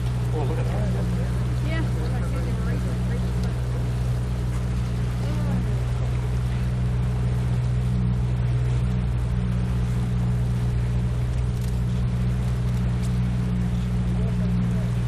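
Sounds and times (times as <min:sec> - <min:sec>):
outboard motor humming: 0:00.0 - 0:15.0.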